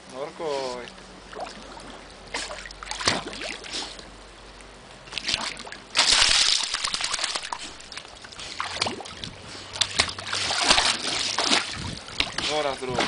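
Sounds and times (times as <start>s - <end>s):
dog splashing in pool water: 1.3s - 4.0s, 5.1s - 13.0s.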